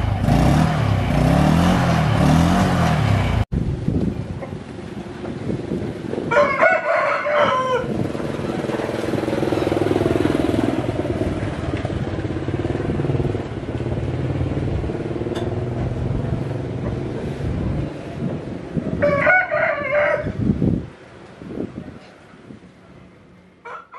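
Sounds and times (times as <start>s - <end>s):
steady engine hum: 0.0s - 23.6s
rooster crowing: 6.3s - 8.1s, 18.9s - 20.4s, 23.6s - 23.9s.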